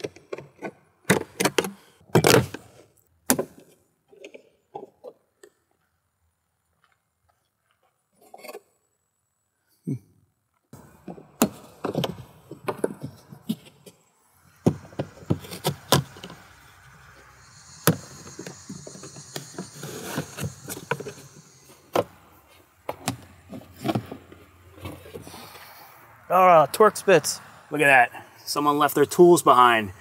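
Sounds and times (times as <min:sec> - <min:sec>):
scraping hiss: 0:13.4 - 0:22.8.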